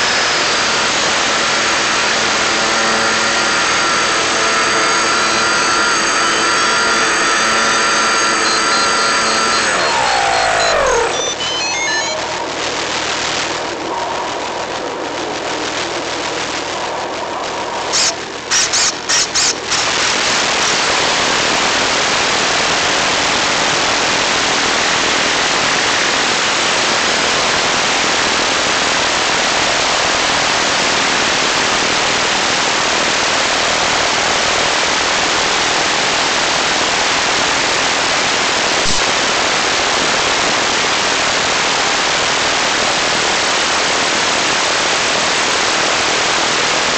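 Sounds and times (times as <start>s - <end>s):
choppy noisy onboard audio: 0.0s - 46.9s.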